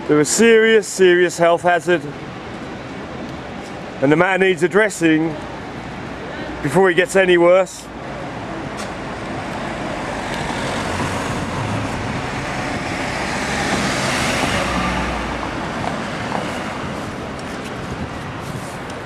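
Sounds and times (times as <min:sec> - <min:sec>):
vehicle passing close by: 0:09.1 - 0:18.8.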